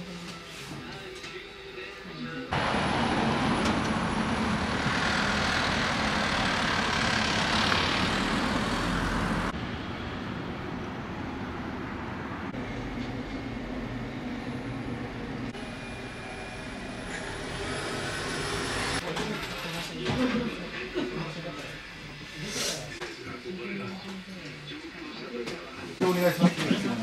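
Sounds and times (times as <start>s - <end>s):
traffic rushing past: 2.5s - 15.5s
traffic hum: 2.5s - 15.8s.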